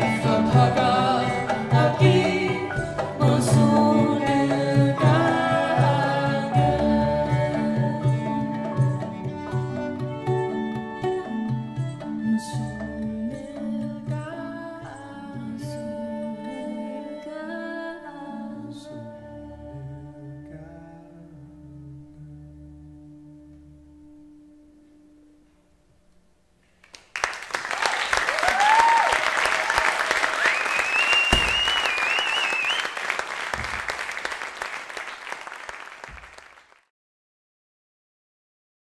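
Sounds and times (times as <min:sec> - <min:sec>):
voices singing: 0:00.0 - 0:08.8
audience applauding: 0:26.8 - 0:36.9
high wavering whistle: 0:30.4 - 0:33.0.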